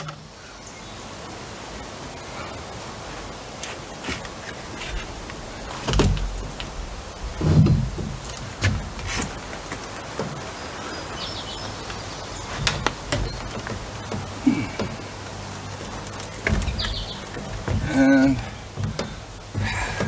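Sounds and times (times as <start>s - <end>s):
window frame knocking and creaking: 4.0s - 20.0s.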